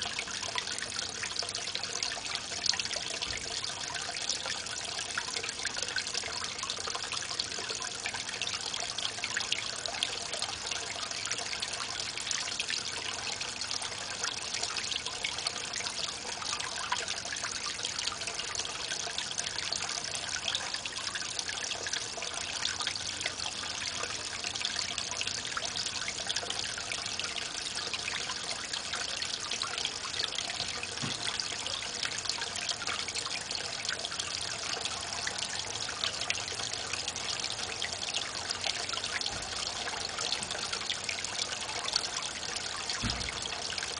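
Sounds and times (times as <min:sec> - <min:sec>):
water splashing into pond: 0:08.9 - 0:43.9.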